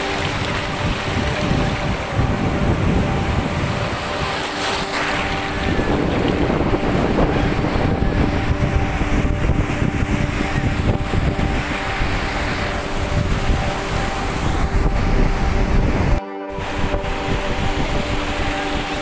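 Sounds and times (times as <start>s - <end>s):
surf breaking on beach: 0.0s - 19.0s
water swirling in shallows: 0.0s - 19.0s
wind buffeting microphone: 0.0s - 19.0s.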